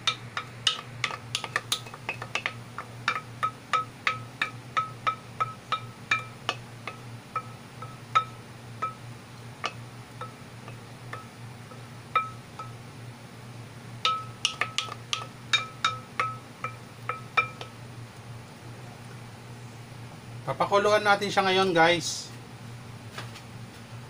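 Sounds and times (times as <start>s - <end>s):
spoon clinking on ceramic bowl: 0.0s - 9.0s, 12.2s - 12.8s.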